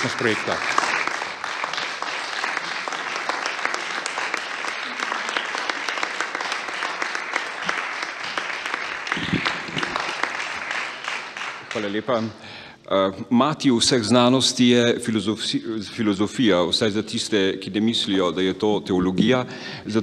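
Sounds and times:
audience applauding: 0.0s - 12.4s.

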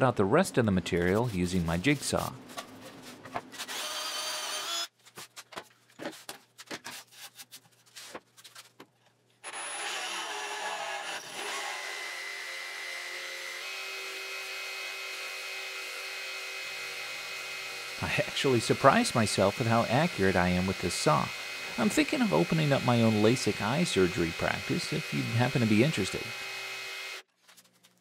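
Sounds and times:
drill boring into plywood: 3.6s - 4.9s, 9.4s - 27.3s
jigsaw cutting plywood: 3.6s - 4.9s, 9.4s - 27.3s.

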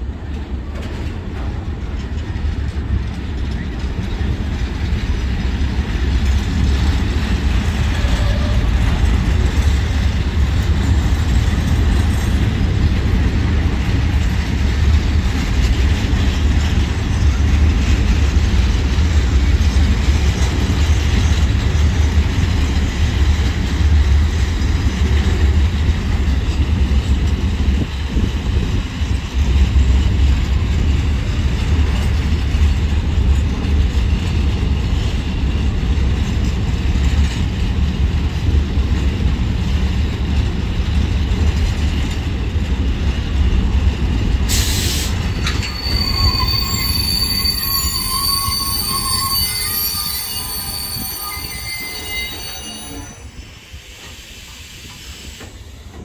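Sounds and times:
freight wagons rumbling on rails: 0.0s - 56.0s
high wheel squeal: 44.5s - 53.7s.

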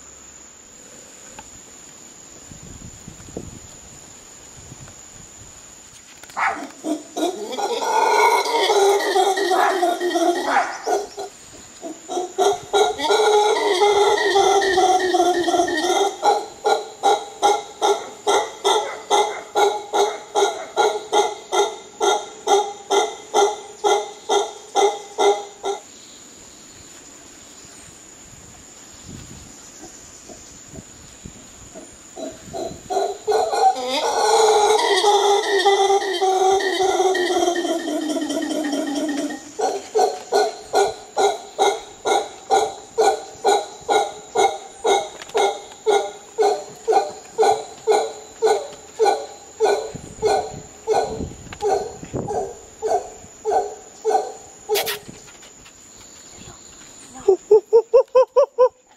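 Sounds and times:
howler monkeys howling: 6.6s - 25.9s, 31.7s - 54.6s.

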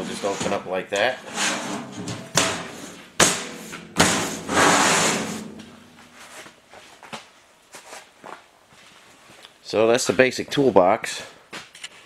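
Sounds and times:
metal scraping on metal: 0.0s - 6.4s
metal toolbox lid clunking: 1.3s - 6.0s.

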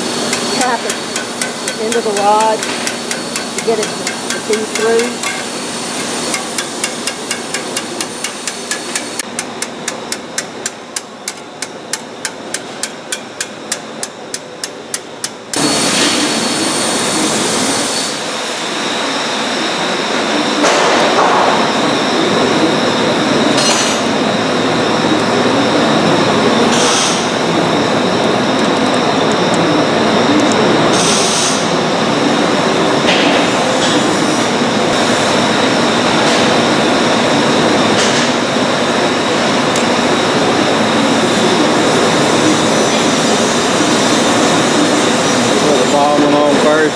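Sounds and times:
loud steady mechanical noise: 0.0s - 46.9s.

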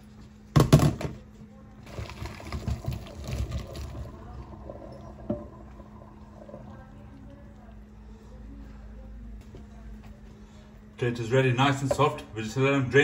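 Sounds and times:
water splashing into colander: 1.8s - 7.5s.

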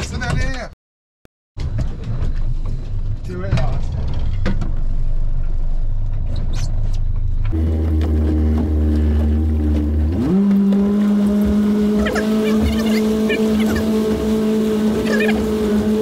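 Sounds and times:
outboard motor running: 7.4s - 16.0s.

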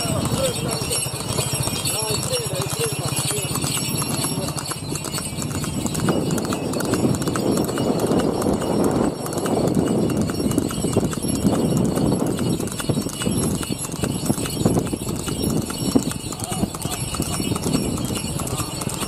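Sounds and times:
horse hooves clip-clopping on road: 0.0s - 19.0s.

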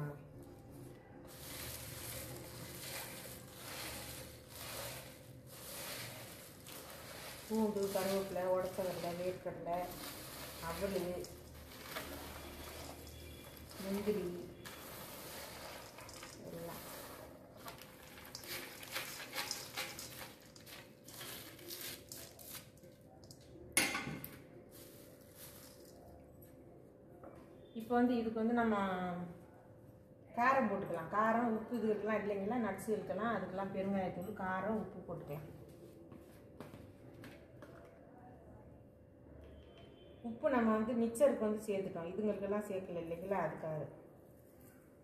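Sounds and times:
dry rustling of fried snacks: 0.7s - 23.4s, 24.7s - 26.2s
nuts rattling into steel bowl: 1.3s - 22.5s.

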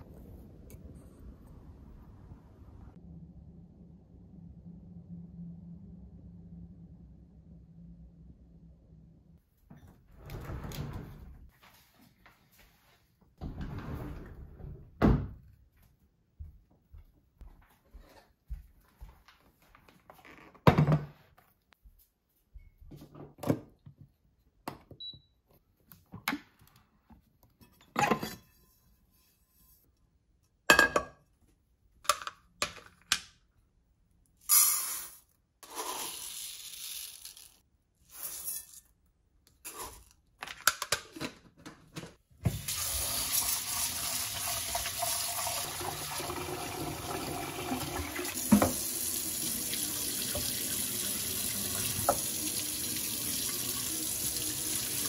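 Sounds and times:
tap water running into a sink: 42.5s - 55.0s.

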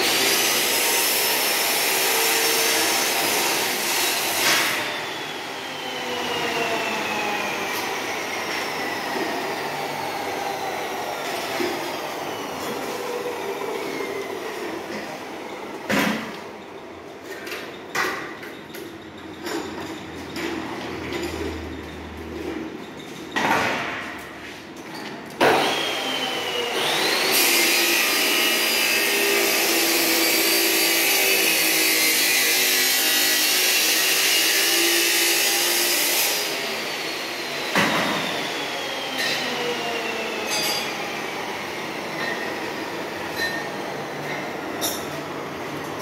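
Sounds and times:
power tool whining on metal: 0.0s - 16.3s, 25.4s - 45.1s.

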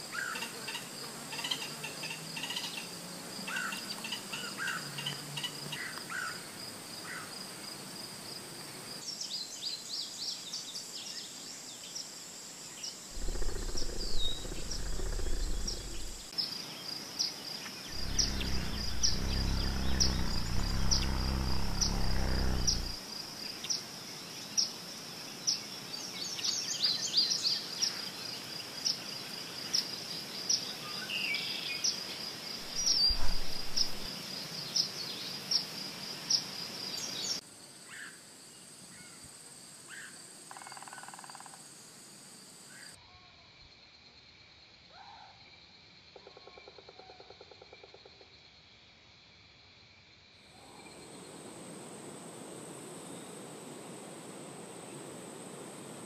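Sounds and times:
crickets and insects trilling: 13.1s - 16.4s, 17.9s - 23.5s, 31.6s - 34.6s, 47.6s - 56.0s
low hum or rumble: 13.2s - 16.3s, 17.9s - 23.0s, 32.6s - 34.1s
small bird chirps: 13.2s - 16.3s, 17.9s - 23.0s, 32.7s - 34.1s.

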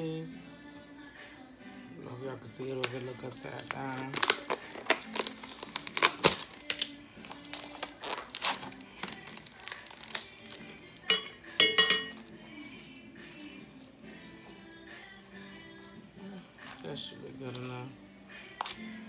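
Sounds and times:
metal spoon clinking bowl: 11.0s - 12.2s.

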